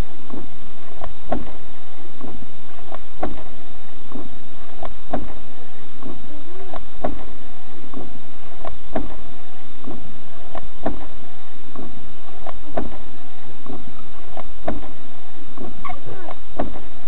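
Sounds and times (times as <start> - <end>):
windshield wiper knocking: 0.3 - 1.6, 2.2 - 5.4, 6.0 - 15.0, 15.6 - 16.9
wiper blade squealing: 15.6 - 17.0.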